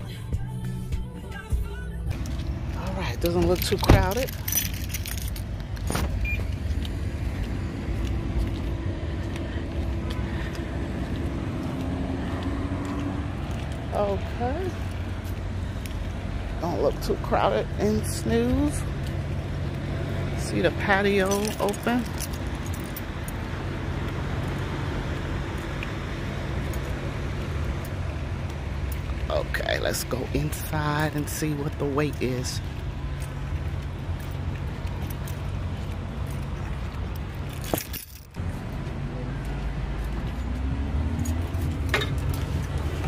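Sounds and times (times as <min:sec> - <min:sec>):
car engine humming: 0:00.0 - 0:43.0
motor vehicle rumbling: 0:00.0 - 0:43.0
road noise: 0:00.0 - 0:43.0.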